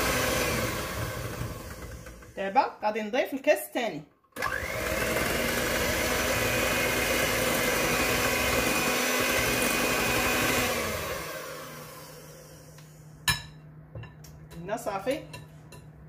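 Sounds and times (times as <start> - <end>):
electric hand mixer whining: 0.0 - 2.4, 4.4 - 13.1.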